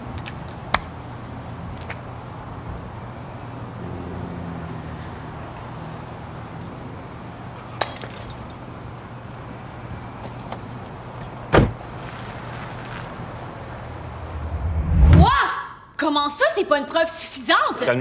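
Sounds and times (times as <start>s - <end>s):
car engine humming: 0.0s - 15.1s
glass bottle smashing: 7.8s - 8.6s
glass shards tinkling: 7.8s - 8.7s.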